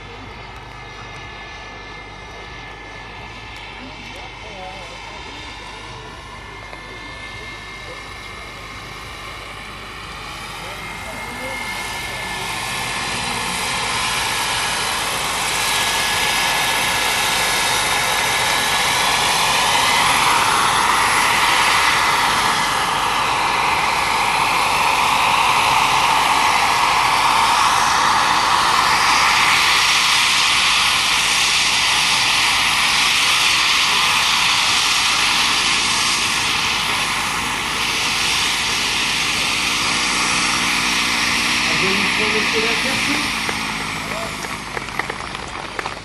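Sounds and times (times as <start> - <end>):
model helicopter turbine whine: 0.0 - 46.0.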